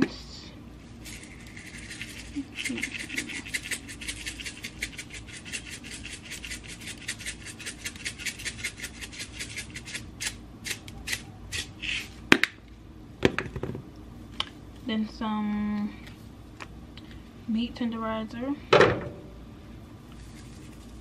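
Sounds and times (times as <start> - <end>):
spice shaker rattling: 1.0 - 12.1, 20.2 - 21.0.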